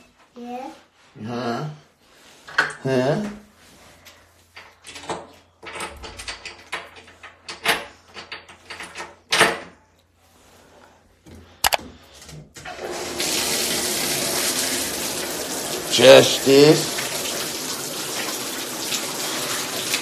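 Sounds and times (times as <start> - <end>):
water running into tub: 12.7 - 20.0.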